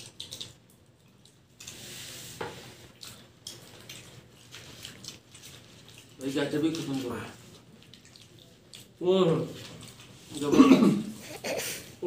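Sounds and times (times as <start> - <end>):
people chewing: 0.0 - 12.0
slurp through a straw: 1.6 - 3.0.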